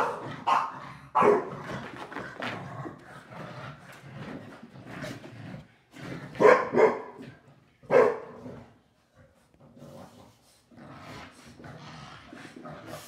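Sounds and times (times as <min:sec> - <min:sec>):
dog barking: 0:00.0 - 0:01.5, 0:06.4 - 0:07.2, 0:07.9 - 0:08.4
dogs scuffling: 0:01.5 - 0:03.0.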